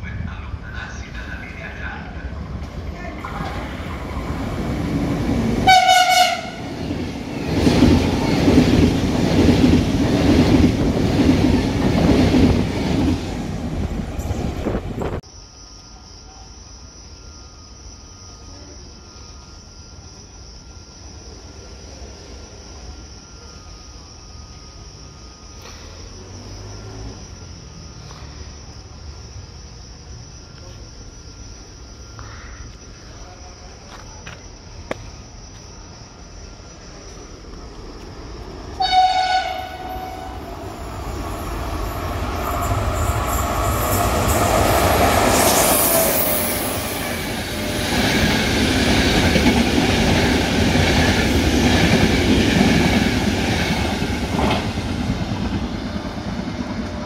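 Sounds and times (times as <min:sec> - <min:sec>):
train passing on track: 0:00.0 - 0:57.0
train horn blast: 0:05.6 - 0:06.8, 0:38.8 - 0:40.5.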